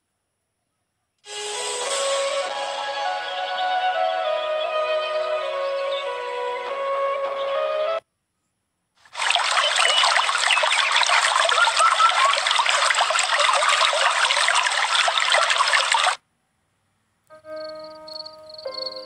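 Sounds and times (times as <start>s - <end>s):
stream water rushing: 9.1s - 16.2s.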